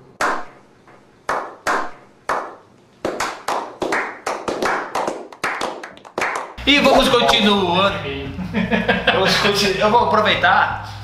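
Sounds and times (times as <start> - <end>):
group clapping: 1.3 - 6.6.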